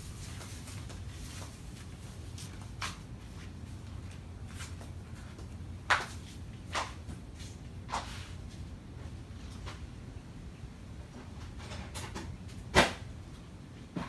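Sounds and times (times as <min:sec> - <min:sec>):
soft scuffs: 0:00.0 - 0:08.6
low steady hum: 0:00.0 - 0:14.0.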